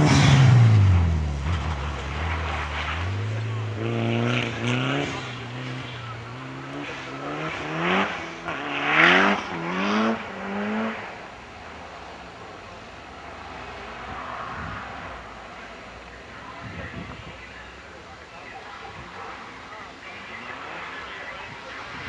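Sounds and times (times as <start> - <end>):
rally car engine accelerating: 0.0 - 15.4.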